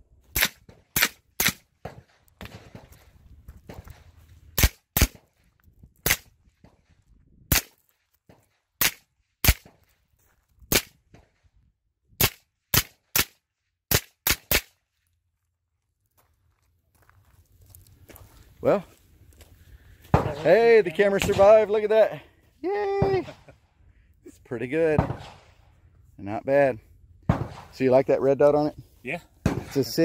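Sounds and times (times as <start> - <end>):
suppressed pistol shots: 25.0 - 25.6, 27.3 - 27.8.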